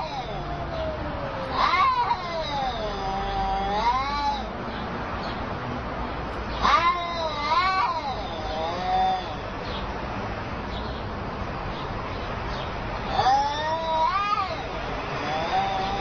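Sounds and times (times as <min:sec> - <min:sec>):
cats yowling: 0:00.0 - 0:04.8, 0:06.4 - 0:09.8, 0:12.5 - 0:16.0.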